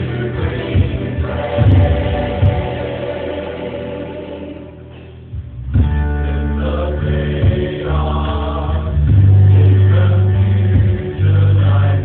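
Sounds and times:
church choir singing: 0:00.0 - 0:05.4, 0:06.0 - 0:12.0.

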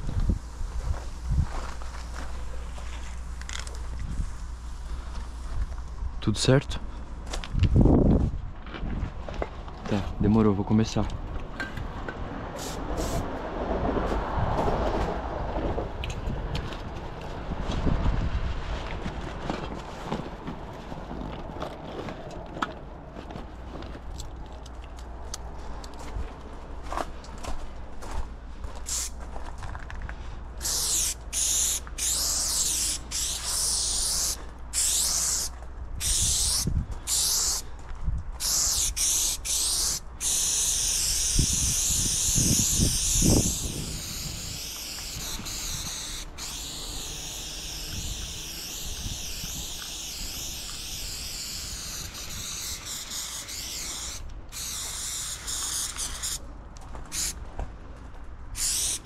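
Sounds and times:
spray paint can hissing: 0:12.6 - 0:13.3, 0:28.8 - 0:29.2, 0:30.6 - 0:37.7, 0:38.4 - 0:56.4, 0:57.1 - 0:57.4, 0:58.6 - 0:59.0.

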